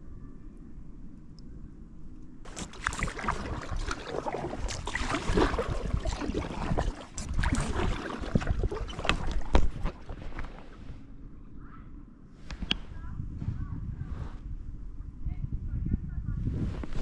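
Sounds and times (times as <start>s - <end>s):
low rumble: 0.0s - 17.0s
water dripping: 2.5s - 10.2s
paddle splashing in water: 2.5s - 11.0s.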